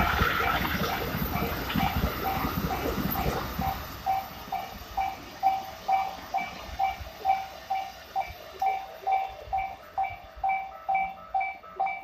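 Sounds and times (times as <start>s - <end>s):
faint rumble of passing train: 0.0s - 12.0s
level-crossing bell ringing: 3.6s - 12.0s.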